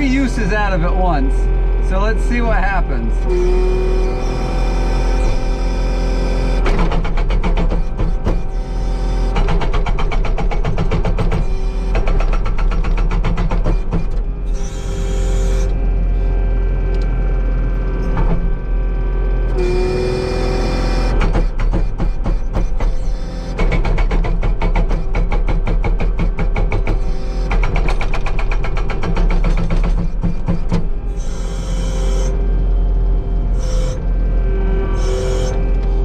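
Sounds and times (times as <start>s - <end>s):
hydraulic whine: 0.0s - 36.0s
skid steer engine running: 0.0s - 36.0s
hydraulic breaker hammer pounding: 3.2s - 15.8s, 19.5s - 32.4s.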